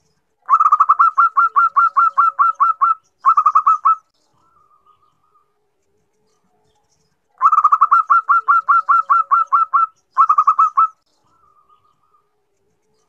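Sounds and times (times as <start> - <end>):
dove cooing: 0.4 - 5.6, 7.4 - 12.4.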